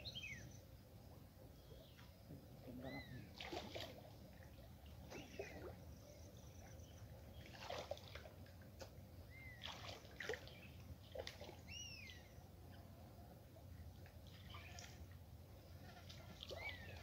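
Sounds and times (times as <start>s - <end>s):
water splashing and sloshing: 3.2s - 12.8s, 13.4s - 17.0s.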